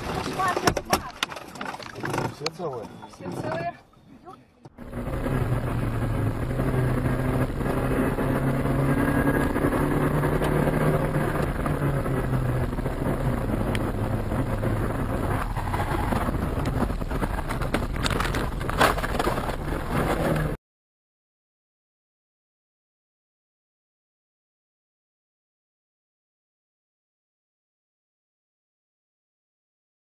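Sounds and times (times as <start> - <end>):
car engine and road noise: 0.0 - 20.6.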